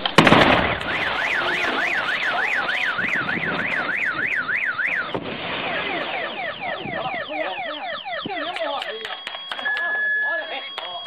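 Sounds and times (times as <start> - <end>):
tower collapsing: 0.0 - 7.5
demolition blast: 0.0 - 8.6
car alarm: 0.6 - 11.0.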